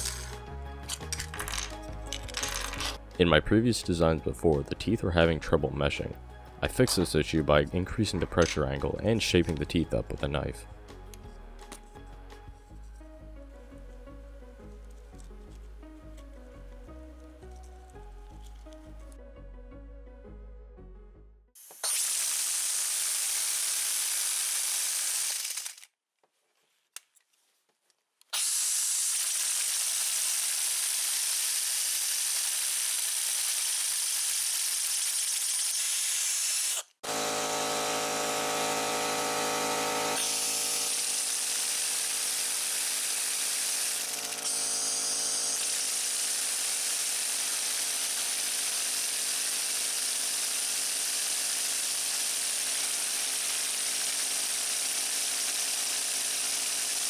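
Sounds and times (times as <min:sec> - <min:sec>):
rotors spinning buzz: 0:37.0 - 0:46.2.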